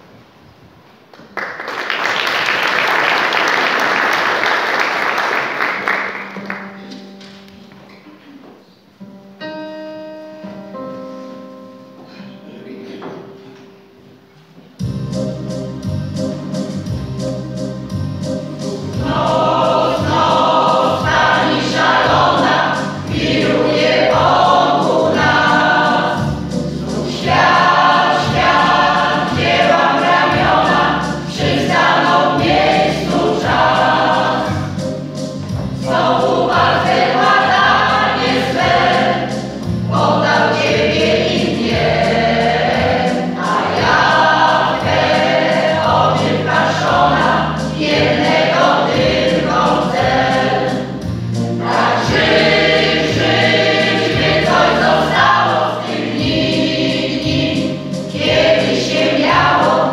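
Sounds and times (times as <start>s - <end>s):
mixed choir singing: 18.6s - 59.9s.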